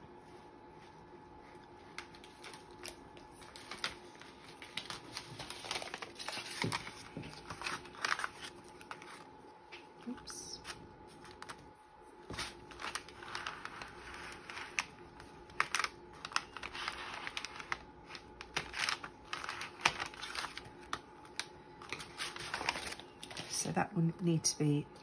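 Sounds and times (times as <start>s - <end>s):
paper rustling: 0.8s - 23.7s.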